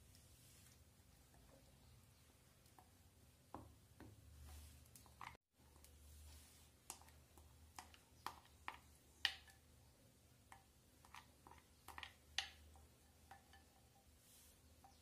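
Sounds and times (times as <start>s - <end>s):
spoon tapping and scraping glass bowl: 10.5s - 14.1s, 14.7s - 15.0s.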